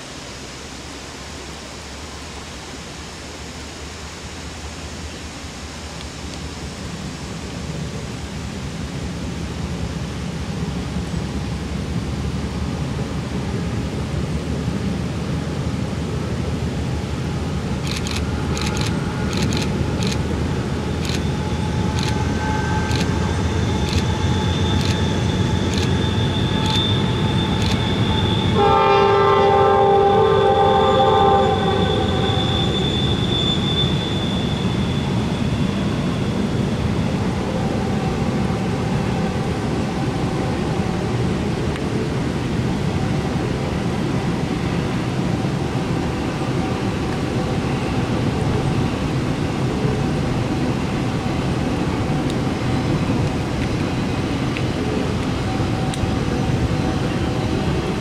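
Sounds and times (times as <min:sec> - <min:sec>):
freight train rumbling on bridge: 0:00.0 - 0:58.0
locomotive horn blast: 0:26.4 - 0:34.4.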